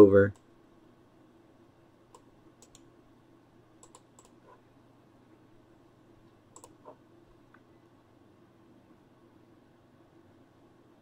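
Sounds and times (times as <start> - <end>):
computer mouse clicks: 2.1 - 2.9, 3.8 - 4.6, 6.5 - 7.6.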